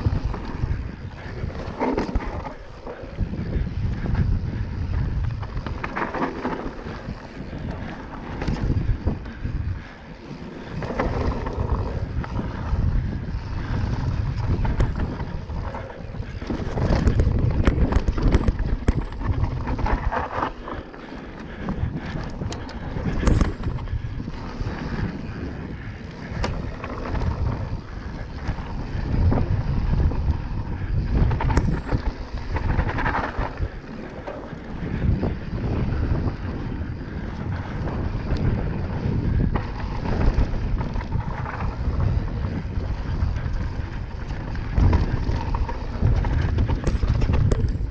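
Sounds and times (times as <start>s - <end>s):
bike knocking and rattling: 0.0s - 47.9s
wind buffeting microphone: 0.0s - 47.9s
tyres rolling over gravel: 5.2s - 8.9s, 10.3s - 30.5s.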